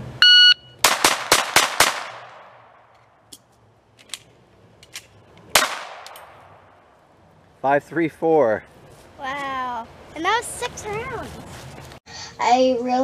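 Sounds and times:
shot timer beep: 0.2 - 0.8
pistol shots: 0.8 - 2.8, 5.5 - 6.7.

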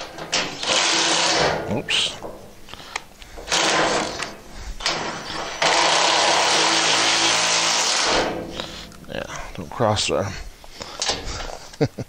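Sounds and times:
impact driver hammering: 3.4 - 9.0.

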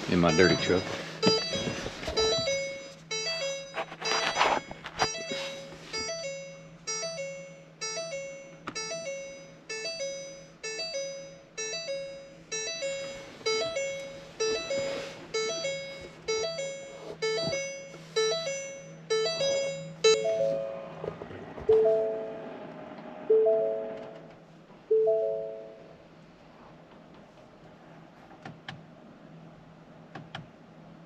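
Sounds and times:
two-note warning chime: 0.0 - 21.0, 21.7 - 22.6, 23.3 - 24.3, 24.9 - 25.9
faint steady hum: 0.0 - 31.0.

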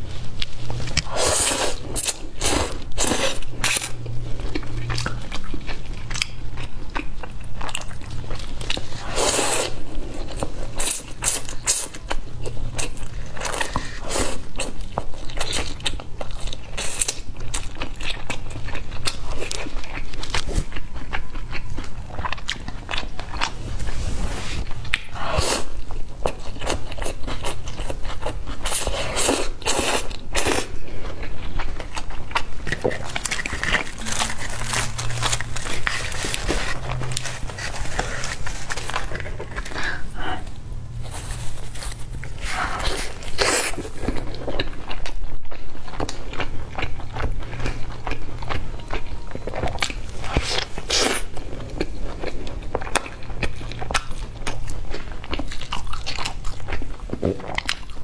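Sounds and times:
wet chewing: 0.2 - 23.9, 24.7 - 58.0
slurping noodles: 1.0 - 4.0, 9.0 - 9.9.

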